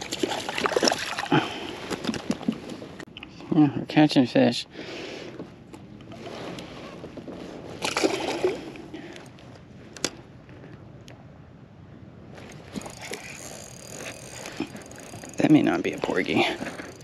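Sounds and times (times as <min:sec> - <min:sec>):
water splash and slosh: 0:00.0 - 0:02.7, 0:07.8 - 0:08.8.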